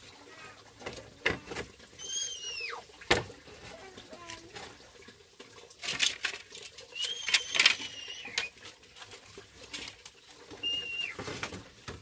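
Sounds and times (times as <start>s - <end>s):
high whistling tones: 6.9s - 8.5s, 10.6s - 11.2s.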